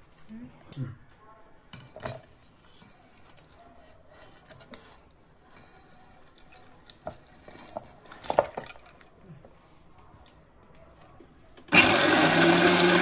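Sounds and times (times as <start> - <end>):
fruit chunks dropping: 6.9 - 9.1.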